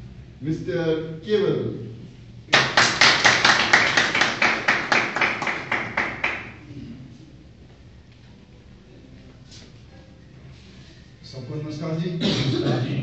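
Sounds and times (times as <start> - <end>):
hands clapping: 2.5 - 6.6.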